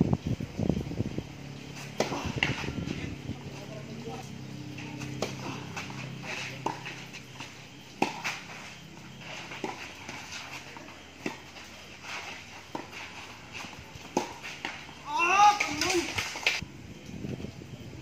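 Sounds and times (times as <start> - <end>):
tennis ball struck by racket: 1.8 - 3.0, 4.7 - 7.1, 8.0 - 8.6, 11.2 - 15.0.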